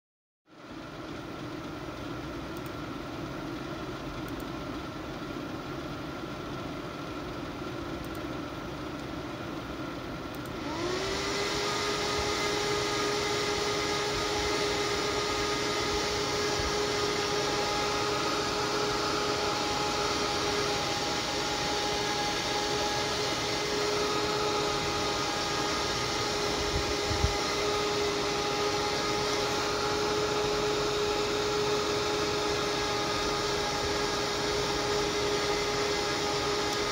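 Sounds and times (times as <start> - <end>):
cooling fan whining: 0.6 - 36.9
rush of air from fan: 10.6 - 29.9.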